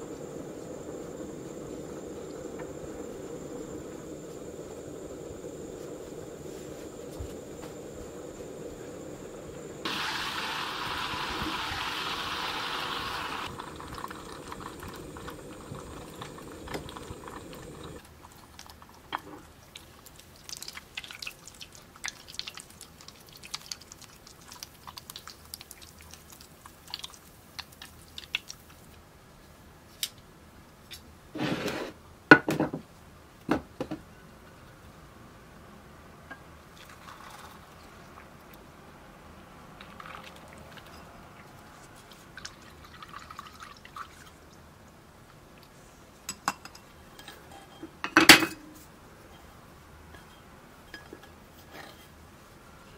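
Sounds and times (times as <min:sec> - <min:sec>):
butter sizzling in saucepan: 0:00.0 - 0:28.7
crackles and pops: 0:00.0 - 0:29.0
short scrape: 0:31.4 - 0:32.0.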